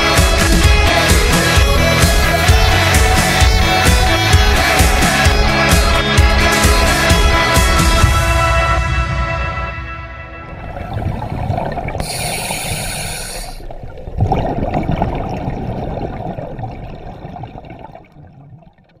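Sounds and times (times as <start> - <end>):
underwater bubbling: 10.4 - 19.0
air hiss: 12.0 - 13.7.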